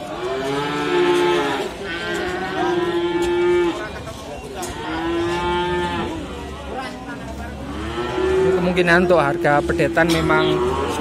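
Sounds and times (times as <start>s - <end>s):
calves mooing: 4.6s - 6.3s, 7.6s - 11.0s.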